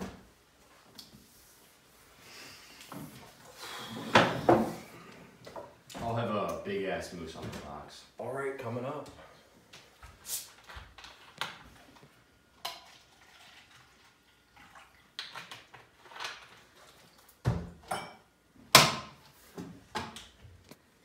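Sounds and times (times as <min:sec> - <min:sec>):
glasses clinking on a counter: 0:17.9 - 0:18.2.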